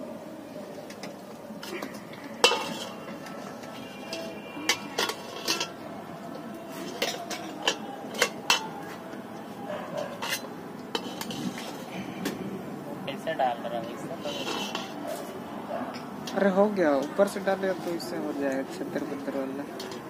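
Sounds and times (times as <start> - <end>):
spoon clinking against metal pan: 2.4 - 5.8.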